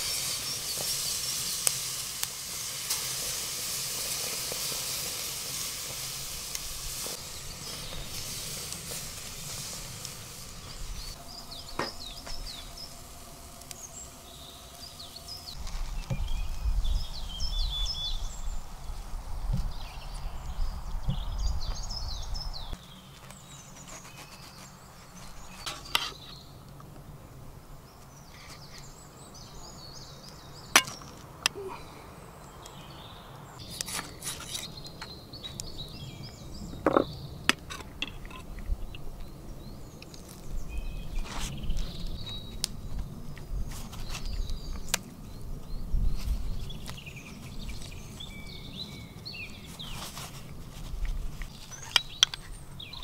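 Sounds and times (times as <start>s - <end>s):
birds chirping: 4.2s - 53.0s.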